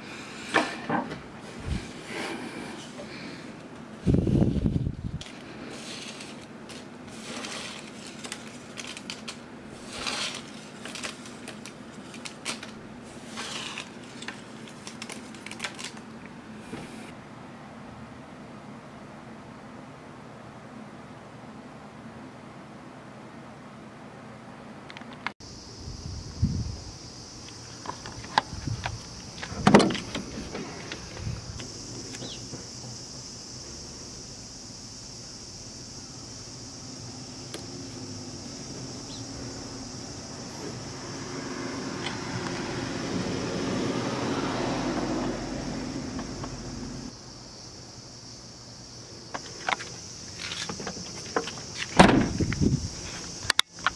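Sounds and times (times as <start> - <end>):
paper rustling and crinkling: 4.4 - 17.1
paper pieces ticking on wooden table: 5.2 - 9.4, 10.0 - 16.1
truck door clunk: 29.4 - 31.1, 50.7 - 52.5.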